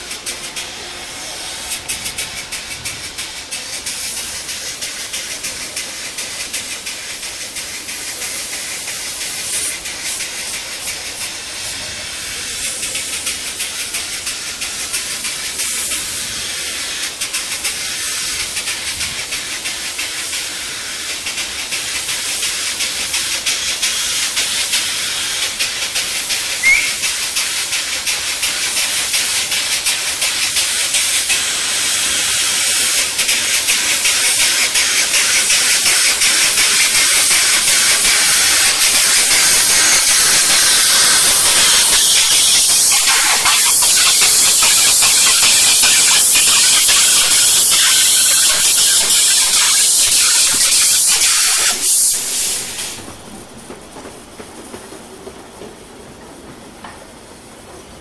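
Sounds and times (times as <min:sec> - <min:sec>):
steam locomotive hissing: 0:00.0 - 0:58.0.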